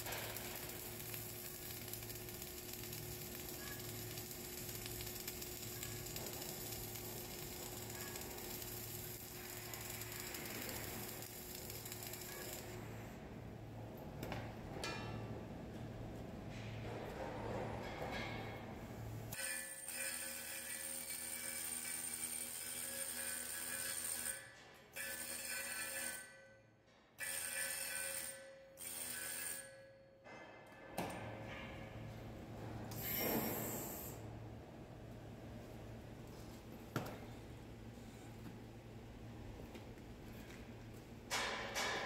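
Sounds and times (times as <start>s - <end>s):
welding arc crackling: 0.0s - 13.2s.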